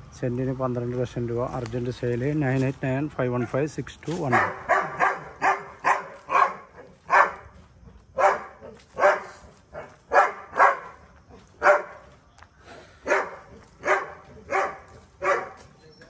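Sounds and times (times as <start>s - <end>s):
dog barking: 3.4s - 3.7s, 4.3s - 7.5s, 8.2s - 12.1s, 13.0s - 15.7s.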